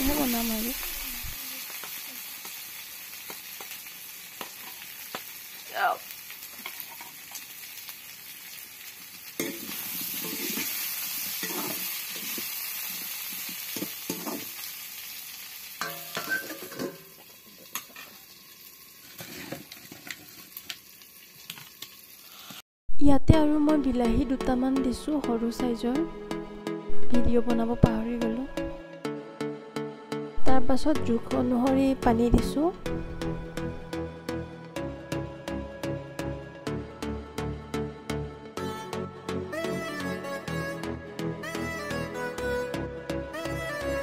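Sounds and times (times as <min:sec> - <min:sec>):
food sizzling in hot oil: 0:00.0 - 0:22.6
spatula scraping a pan: 0:09.4 - 0:12.6, 0:19.0 - 0:20.4
steel lid clattering: 0:15.8 - 0:17.1.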